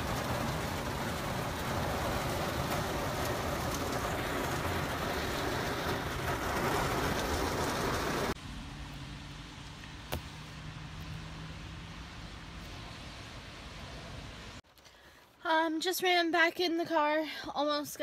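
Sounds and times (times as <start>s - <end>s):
heavy rain on car roof: 0.0s - 8.4s.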